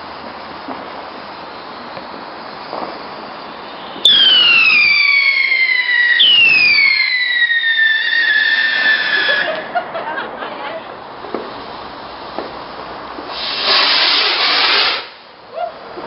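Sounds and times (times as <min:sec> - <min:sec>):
firework fuses hissing: 0:00.0 - 0:09.8, 0:11.1 - 0:15.5
whistling rocket falling in pitch: 0:01.4 - 0:09.7, 0:13.3 - 0:15.2.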